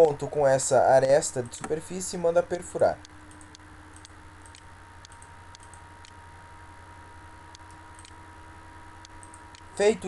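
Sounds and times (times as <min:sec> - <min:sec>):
faint electrical hum: 0:00.0 - 0:10.0
computer mouse clicks: 0:03.3 - 0:06.2, 0:07.5 - 0:08.2, 0:09.0 - 0:09.7.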